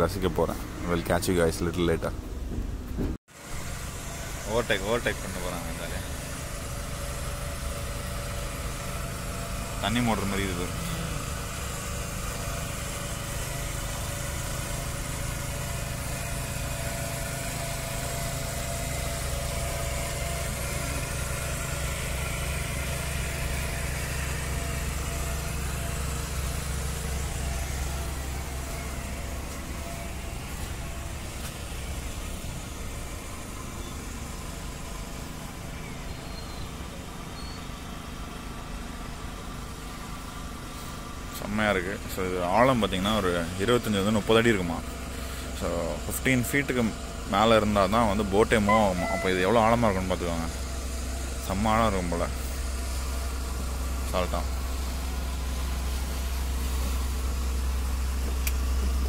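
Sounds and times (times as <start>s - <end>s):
boat engine droning: 0.0s - 38.3s, 41.5s - 59.0s.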